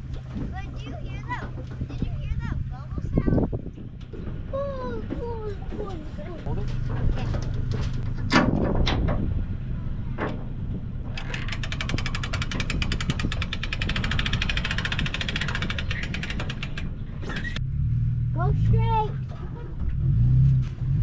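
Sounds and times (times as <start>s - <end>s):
rapid even ticking: 11.1s - 17.6s.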